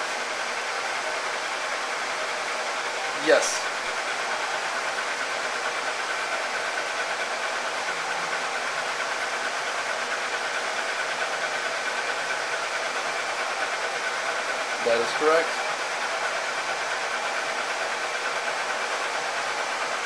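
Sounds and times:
laser engraver whirring: 0.0s - 20.0s.

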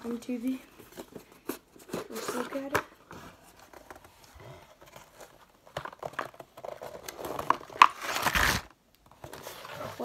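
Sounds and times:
packaging crinkling and tearing: 5.1s - 10.0s.

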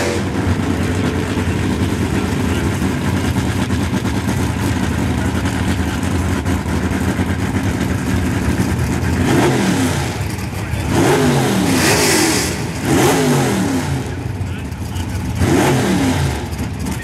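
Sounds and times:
race car engines idling: 0.0s - 17.0s
engines revving in blips: 9.2s - 14.3s, 15.2s - 17.0s.

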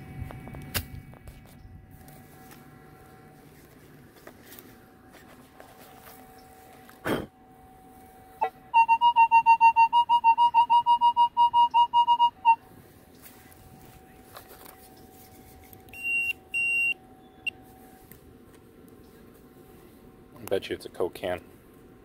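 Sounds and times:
faint steady hum: 0.0s - 22.0s
metal detector beeping: 8.7s - 12.6s, 15.9s - 17.6s.

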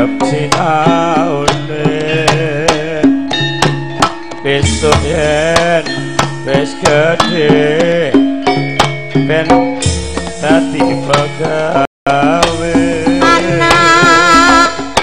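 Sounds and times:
person singing wavering melody: 10.4s - 15.0s
metallophone tones: 13.0s - 15.0s.

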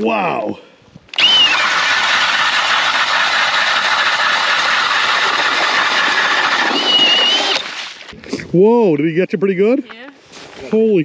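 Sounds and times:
high drill whine: 1.1s - 7.7s
drill grinding through ice: 1.1s - 7.8s.

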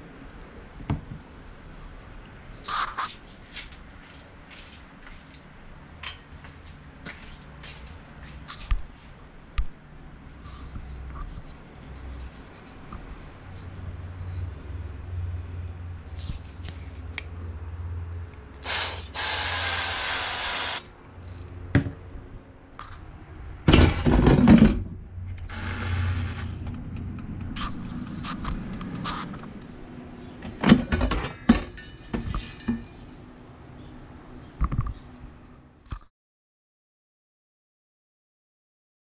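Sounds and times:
oil spray can hissing: 18.6s - 20.9s.

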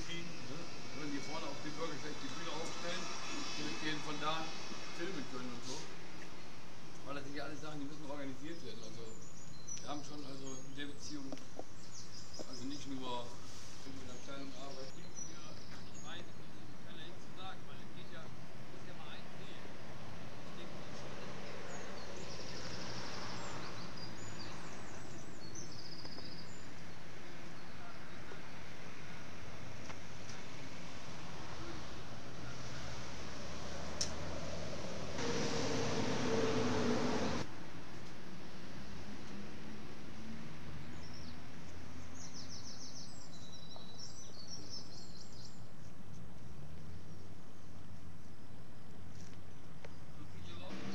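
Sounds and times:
small birds chirping: 0.0s - 33.0s, 40.8s - 50.9s
outdoor background noise: 0.0s - 50.9s
small bird chirping and trilling: 8.4s - 13.0s, 21.5s - 26.8s.

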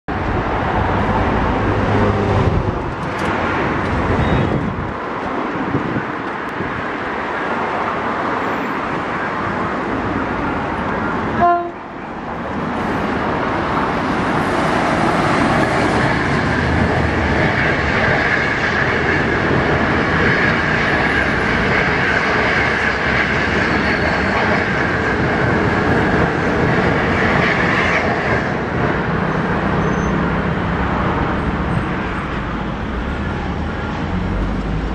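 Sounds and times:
train horn blast: 11.3s - 11.9s.

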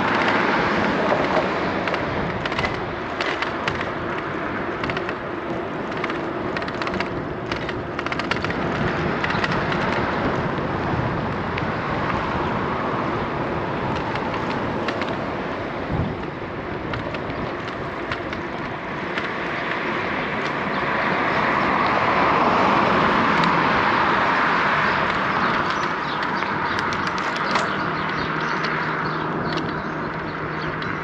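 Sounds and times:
light clicks and rattles: 0.0s - 10.2s, 13.9s - 15.3s, 16.2s - 20.6s, 24.9s - 31.0s
wind and road noise: 0.0s - 31.0s.

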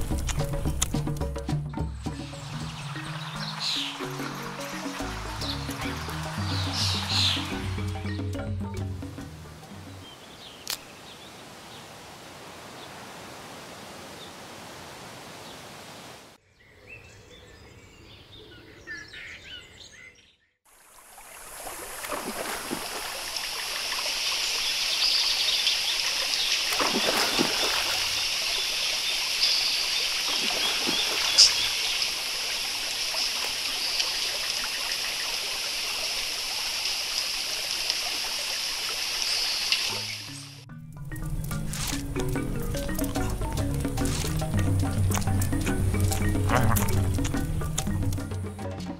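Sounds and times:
stream water running: 0.0s - 16.4s, 20.6s - 48.9s
bird calls: 1.8s - 8.4s, 9.6s - 12.0s, 16.5s - 20.6s, 23.8s - 36.3s, 38.0s - 40.6s, 41.2s - 48.7s.

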